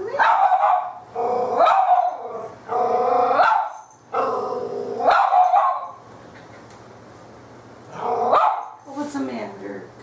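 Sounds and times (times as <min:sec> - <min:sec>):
puppy howling barks: 0:00.1 - 0:06.0, 0:07.9 - 0:08.8.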